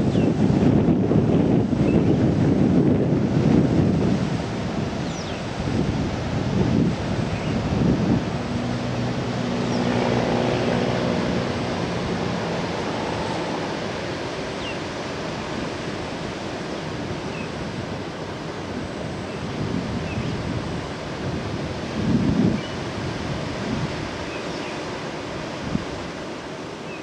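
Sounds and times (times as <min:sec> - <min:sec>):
wind: 0:00.0 - 0:27.0
surf breaking: 0:06.1 - 0:16.6.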